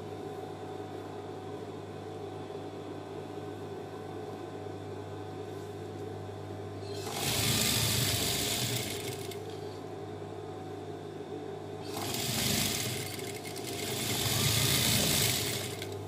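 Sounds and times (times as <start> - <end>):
sewing machine stitching: 6.9 - 9.4, 11.8 - 16.0.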